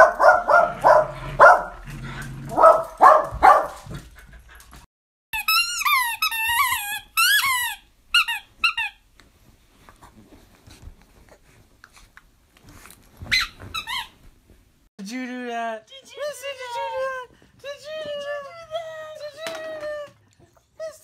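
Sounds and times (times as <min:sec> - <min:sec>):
dogs barking and growling: 0:00.0 - 0:04.9
squeaky toy squeaks: 0:05.4 - 0:09.0, 0:13.3 - 0:14.2.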